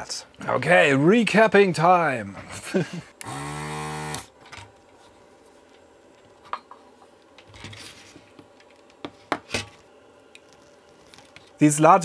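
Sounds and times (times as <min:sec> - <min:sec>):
desoldering gun vacuum pump: 0:03.2 - 0:04.3.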